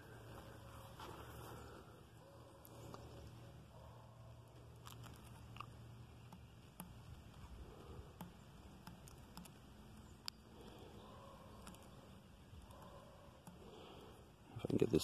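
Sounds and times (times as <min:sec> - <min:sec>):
faint handling clicks and taps: 0:04.9 - 0:07.4, 0:08.2 - 0:10.4.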